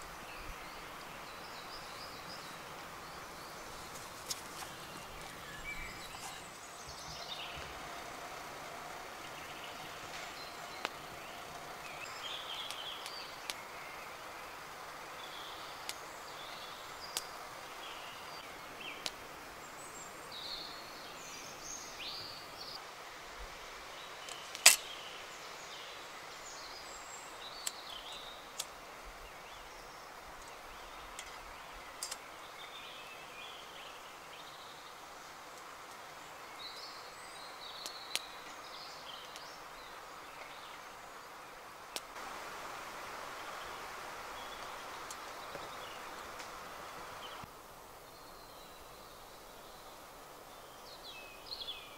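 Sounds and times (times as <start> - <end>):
bird calls: 0.0 - 22.8
steady background hiss: 0.0 - 51.9
camp gear clicks and knocks: 3.8 - 7.8, 24.3 - 24.9.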